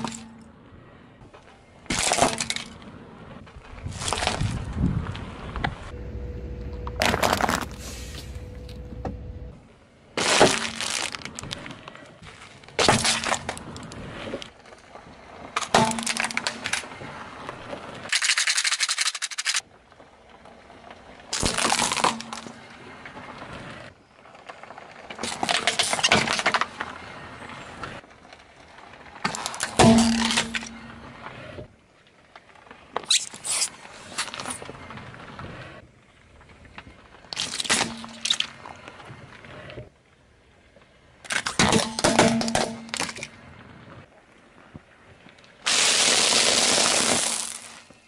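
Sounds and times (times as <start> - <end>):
tyre crushing crackling objects: 1.4 - 5.9, 6.8 - 8.8, 10.2 - 18.1, 21.2 - 31.3, 45.6 - 48.0.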